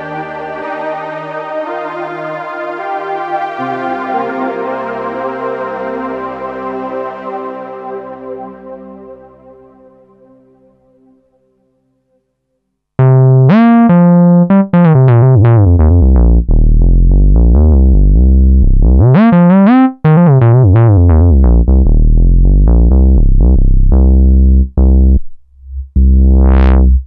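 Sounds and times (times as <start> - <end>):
synthesizer bass notes: 13.0 - 27.0.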